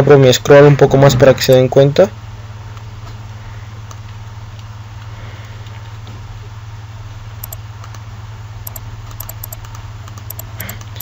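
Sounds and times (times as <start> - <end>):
low electrical hum: 0.0 - 11.0
computer mouse clicks: 7.4 - 8.0, 8.6 - 11.0.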